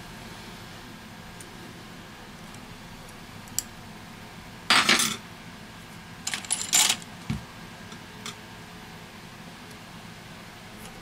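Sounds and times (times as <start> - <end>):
small metal tools clinking: 6.3 - 7.0.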